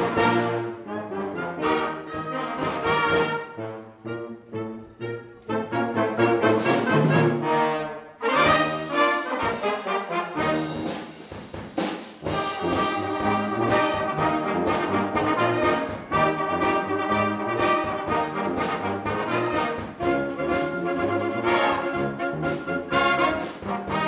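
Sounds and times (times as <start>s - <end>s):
wind band playing: 0.0s - 11.5s, 12.2s - 24.0s
percussive beat: 10.5s - 24.0s.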